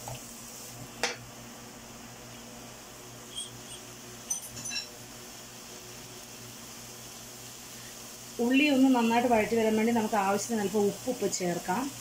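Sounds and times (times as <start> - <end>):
onions frying in oil: 0.0 - 12.0.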